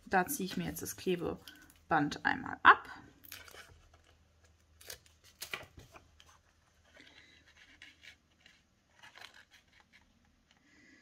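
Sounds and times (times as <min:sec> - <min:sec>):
paper rustling and scraping: 0:03.4 - 0:10.2.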